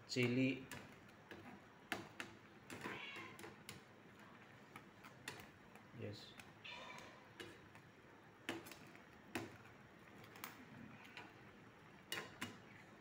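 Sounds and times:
metal spatula tapping a pan: 0:00.2 - 0:03.9, 0:06.3 - 0:09.6, 0:12.0 - 0:12.7.

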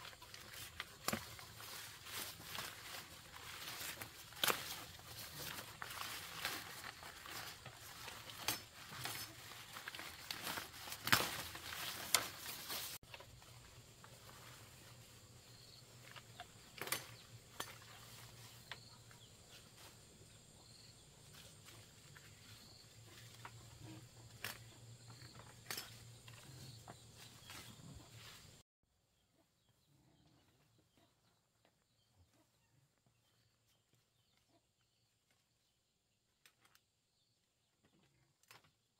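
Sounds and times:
leaves rustling: 0:00.0 - 0:17.2
stems snapping: 0:00.3 - 0:12.9.

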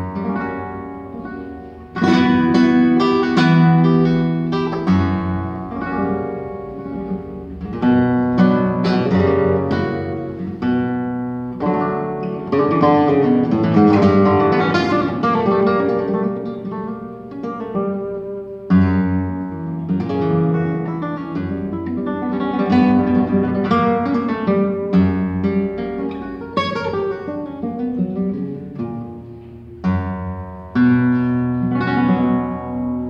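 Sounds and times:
solo nylon-string guitar: 0:00.0 - 0:33.0.

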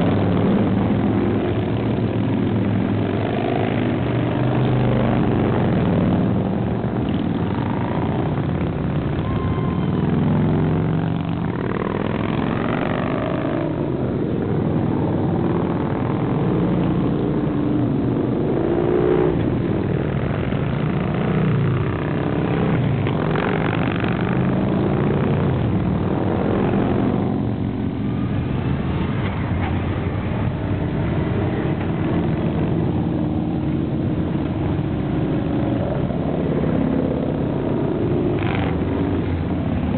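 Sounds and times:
motorcycles riding past: 0:00.0 - 0:39.9.

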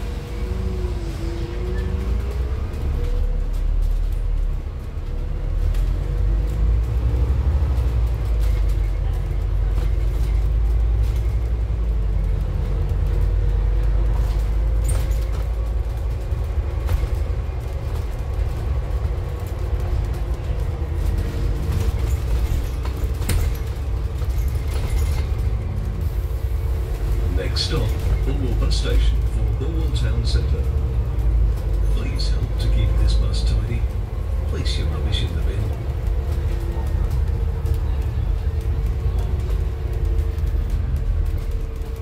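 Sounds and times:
bus engine rumbling: 0:00.0 - 0:42.0
bus body knocks and rattles: 0:14.1 - 0:25.8.

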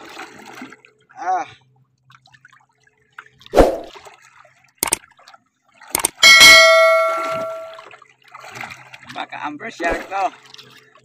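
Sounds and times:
sharp clicks: 0:06.0 - 0:06.2
ringing metallic clang: 0:06.1 - 0:07.8.

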